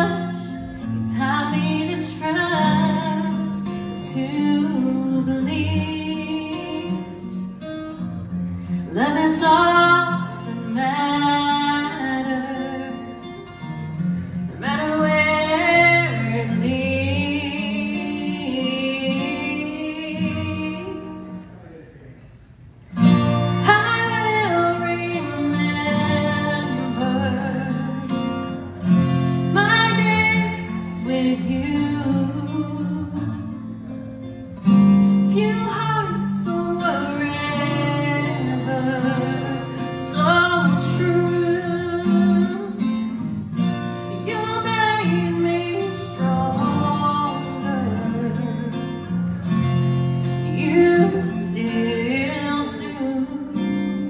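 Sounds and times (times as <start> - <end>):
woman singing a slow ballad: 0.0 - 7.5, 8.8 - 13.6, 14.4 - 21.4, 23.6 - 28.7, 29.4 - 33.5, 35.1 - 43.3, 44.1 - 49.2, 50.2 - 54.0
acoustic guitar: 0.0 - 54.0.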